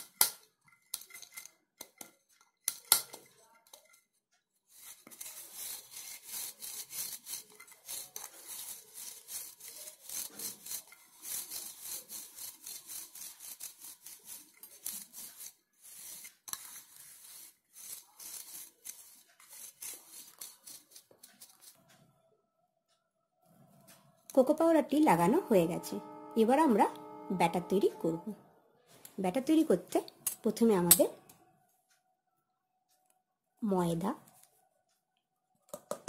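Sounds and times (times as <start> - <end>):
fingers scraping cake tin: 4.7 - 21.8.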